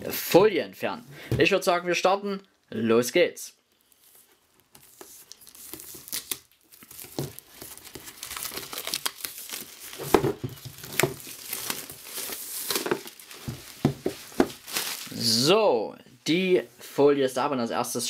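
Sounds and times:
plastic film crinkling and tearing: 3.7 - 15.3.

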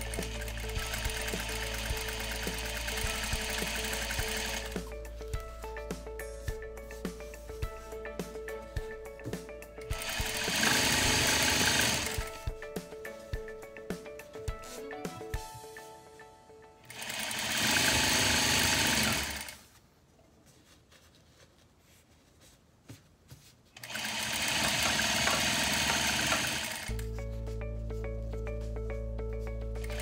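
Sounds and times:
electric sewing machine running: 0.0 - 4.9, 9.9 - 12.5, 16.9 - 19.6, 23.8 - 27.0, 29.8 - 30.0
background music with repeating notes: 0.0 - 19.4, 24.6 - 30.0.

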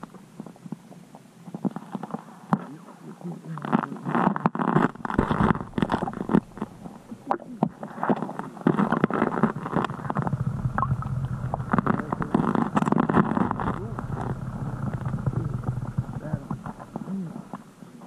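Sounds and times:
water sloshing: 4.9 - 7.6, 9.2 - 17.1
muffled knocking: 9.9 - 17.0.

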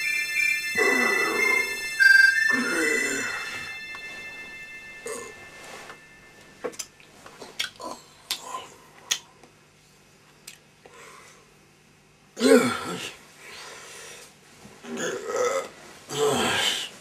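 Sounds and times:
bedding rustling: 3.2 - 7.4
man grunting: 12.4 - 13.2, 15.0 - 16.9.

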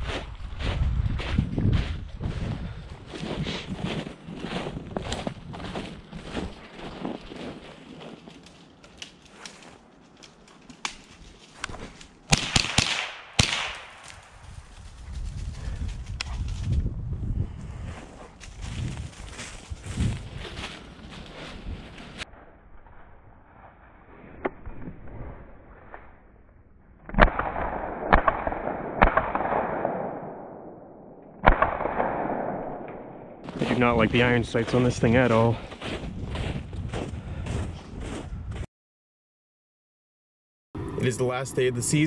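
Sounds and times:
footsteps through dry leaves: 3.2 - 10.2, 17.8 - 22.2, 34.7 - 36.6
twigs snapping: 8.2 - 12.4, 13.4 - 14.2
rifle shots: 12.3 - 14.3, 27.1 - 30.7, 31.4 - 33.2.

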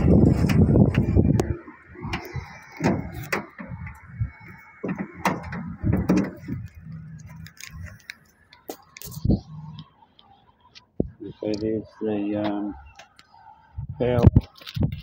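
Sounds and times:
van door clicking open: 0.0 - 8.0.

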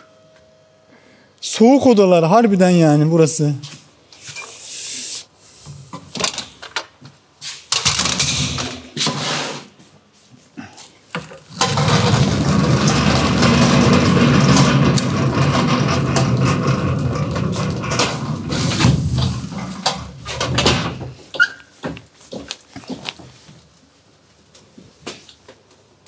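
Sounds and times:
knocks and rustles: 11.1 - 23.7.

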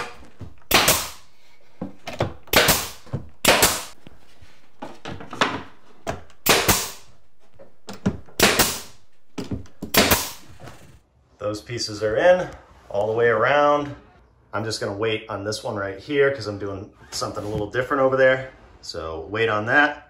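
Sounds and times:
pneumatic staple gun firing: 0.7 - 1.2, 2.5 - 3.9, 6.4 - 7.0, 8.4 - 8.9, 9.9 - 10.4.

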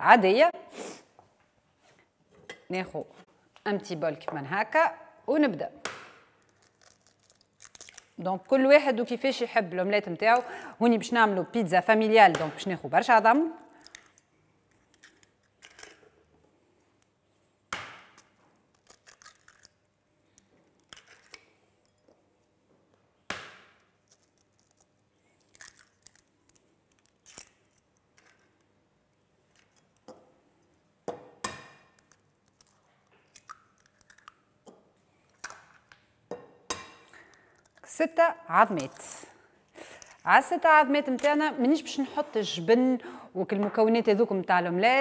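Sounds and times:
eggshell cracking: 5.8 - 8.2, 17.7 - 22.0, 23.3 - 28.6, 31.4 - 36.0
shells crackling and clicking: 6.4 - 8.2, 13.7 - 16.1, 18.1 - 22.2, 23.8 - 28.7, 31.4 - 34.5, 37.0 - 37.9.

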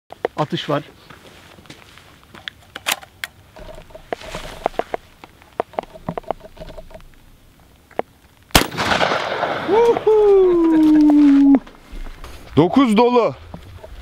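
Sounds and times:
shotgun shot: 8.5 - 10.0.

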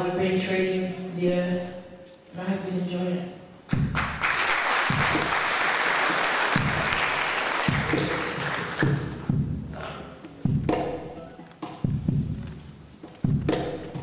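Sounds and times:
cajon bass strikes: 3.7 - 4.3, 4.9 - 5.4, 6.5 - 14.0
audience applauding: 3.9 - 9.3.

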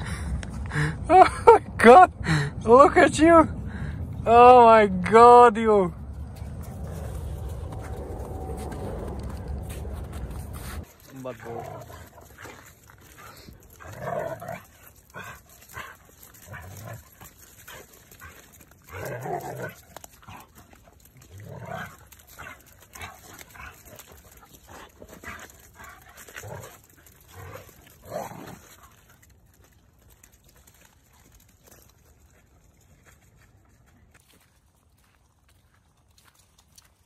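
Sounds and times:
dogs growling: 6.3 - 29.3.

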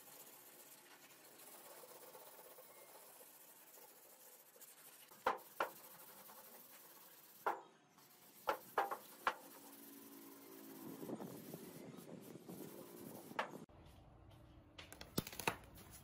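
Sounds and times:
hand sanding rubbing: 0.0 - 13.7
sharp knocks on metal panel: 7.4 - 7.7, 8.5 - 9.4.

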